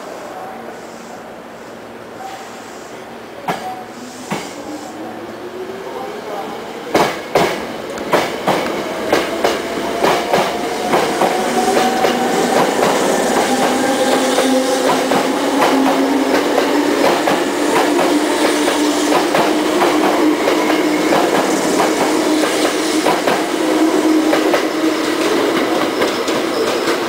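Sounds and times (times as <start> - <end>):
low train hum: 0.0 - 27.0
train wheels clattering over rails: 6.9 - 27.0.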